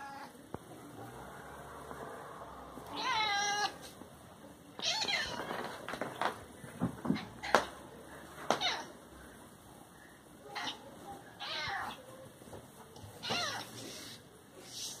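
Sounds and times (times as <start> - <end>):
cat meowing: 2.9 - 3.8, 11.4 - 12.0, 13.2 - 13.7.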